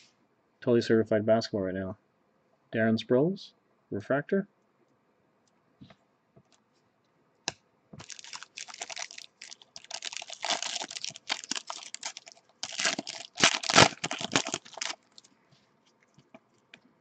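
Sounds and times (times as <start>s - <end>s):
wrapper crinkling and tearing: 8.0s - 15.3s.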